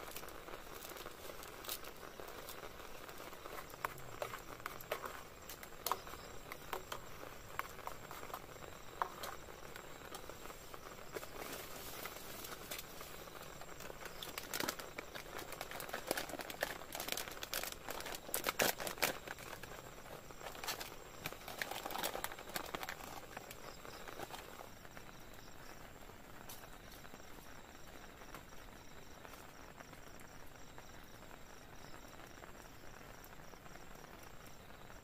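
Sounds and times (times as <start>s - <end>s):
rain pattering on a tent: 0.0s - 35.0s
plastic packet crinkling: 12.0s - 24.7s.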